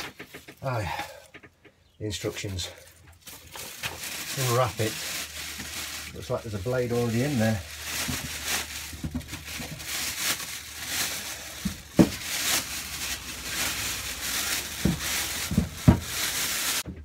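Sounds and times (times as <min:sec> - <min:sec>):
plastic wrapping crinkling: 0:00.0 - 0:01.1, 0:02.1 - 0:17.0
dull thumps: 0:11.6 - 0:17.0.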